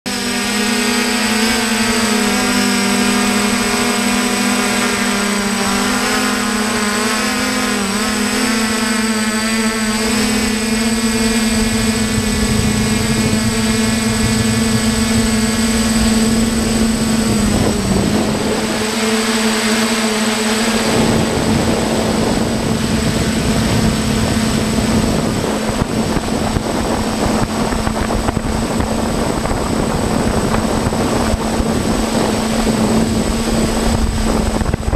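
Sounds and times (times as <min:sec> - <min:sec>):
drone propellers humming: 0:00.1 - 0:34.9
low rushing noise: 0:09.7 - 0:34.9.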